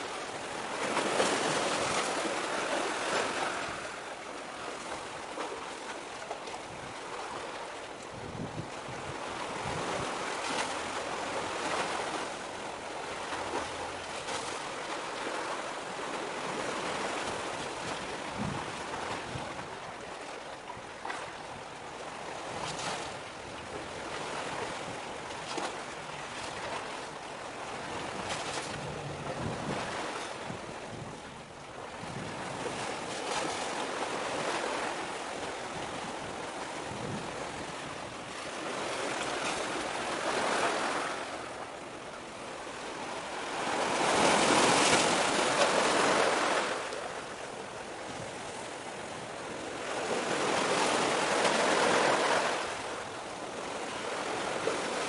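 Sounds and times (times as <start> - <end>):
wind: 0.0 - 55.0
sea waves washing: 22.0 - 55.0.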